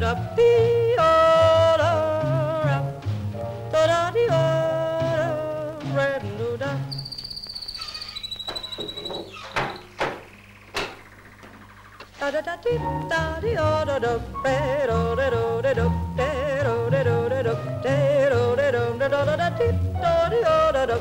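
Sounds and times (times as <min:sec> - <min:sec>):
high pulsing chirp: 0:06.9 - 0:12.3
high yodel-like singing: 0:10.3 - 0:21.0.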